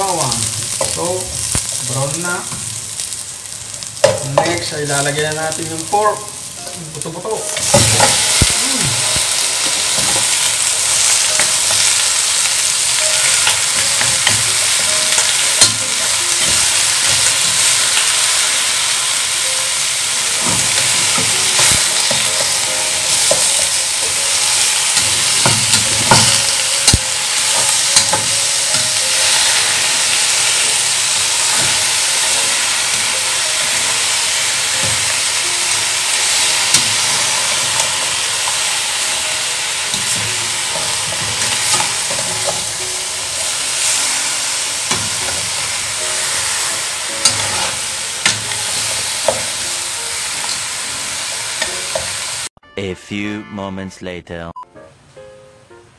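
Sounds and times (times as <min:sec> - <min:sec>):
meat sizzling in a pan: 0:00.0 - 0:52.5
metal spatula scraping pan: 0:43.5 - 0:49.7.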